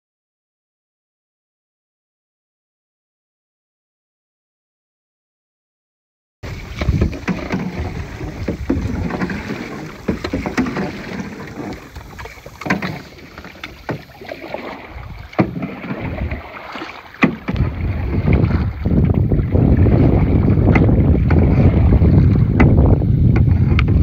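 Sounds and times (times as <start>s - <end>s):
water sloshing at paddle: 6.4s - 24.0s
wind on microphone: 6.4s - 24.0s.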